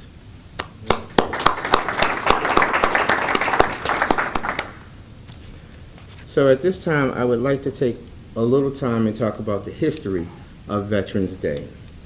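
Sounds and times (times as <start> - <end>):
audience applauding: 0.8 - 4.9.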